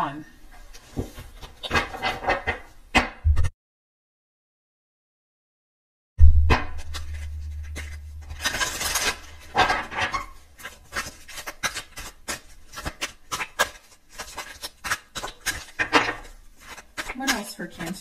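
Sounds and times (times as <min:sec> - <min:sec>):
cards being shuffled: 0:06.6 - 0:09.6, 0:10.6 - 0:17.9.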